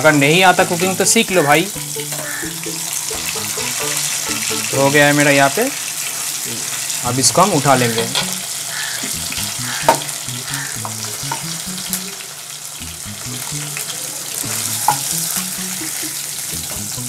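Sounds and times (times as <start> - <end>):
meat sizzling in hot oil: 0.0 - 17.0
spatula knocking against pan: 9.0 - 11.5.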